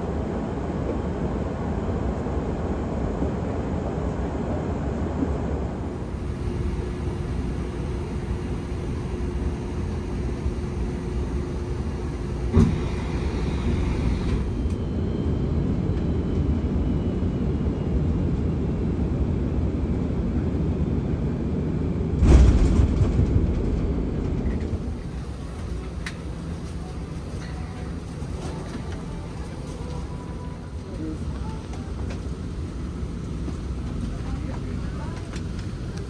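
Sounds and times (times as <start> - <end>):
engines and airflow rumble: 0.0 - 36.0
sharp thump: 12.5 - 12.9, 22.2 - 23.4
heavy deep thump: 22.2 - 24.4.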